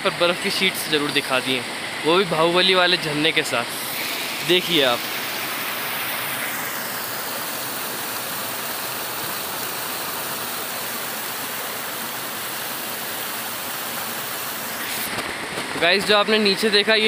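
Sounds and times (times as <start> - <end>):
stream running under snow: 0.0 - 17.0
waterfall rushing: 0.0 - 17.0.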